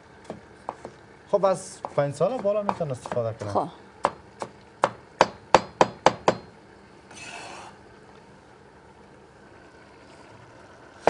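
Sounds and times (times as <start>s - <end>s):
cleaver chopping on wooden board: 1.8s - 6.5s.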